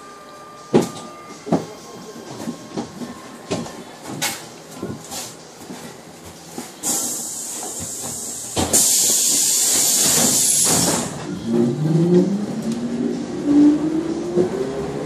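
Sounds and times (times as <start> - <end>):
air hiss of doors closing: 6.8 - 11.2.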